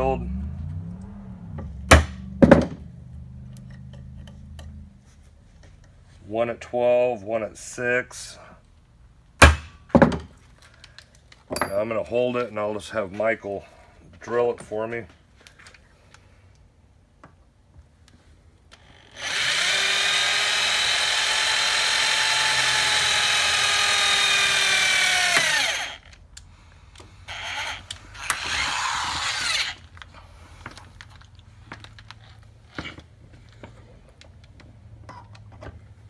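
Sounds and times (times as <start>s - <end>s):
electric drill drilling: 18.8s - 26.1s, 27.3s - 29.8s.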